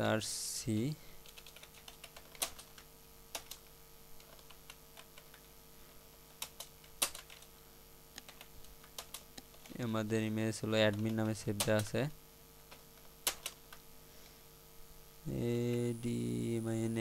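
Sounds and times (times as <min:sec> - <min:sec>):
typing on computer keyboard: 0:01.2 - 0:05.4, 0:06.3 - 0:07.5, 0:08.2 - 0:09.8, 0:10.8 - 0:11.9, 0:12.7 - 0:13.8.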